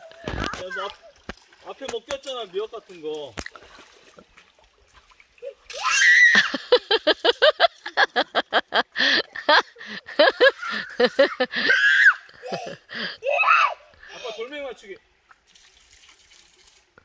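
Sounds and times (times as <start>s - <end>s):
person laughing: 6.4s - 13.2s.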